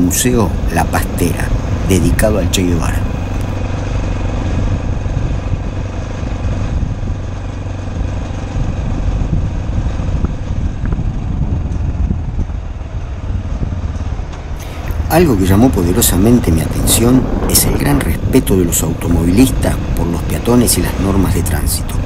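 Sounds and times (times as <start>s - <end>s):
wind on microphone: 0.0s - 22.0s
motorcycle engine running: 0.1s - 22.0s.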